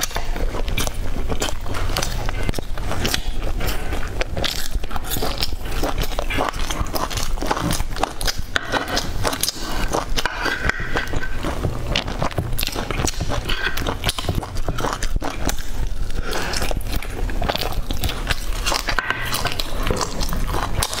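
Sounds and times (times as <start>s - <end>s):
crunchy food chewing: 0.0s - 21.0s.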